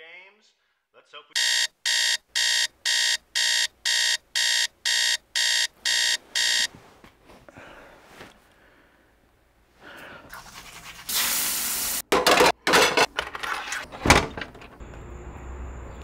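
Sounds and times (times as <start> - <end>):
frying pan clattering in sink: 12.1 - 13.4.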